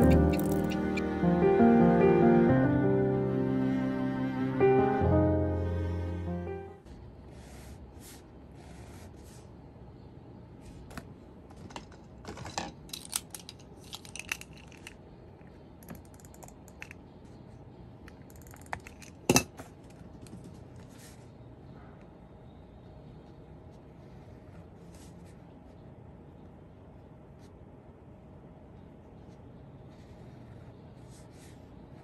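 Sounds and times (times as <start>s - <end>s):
pens clicking and tapping on desk: 0.0s - 0.8s.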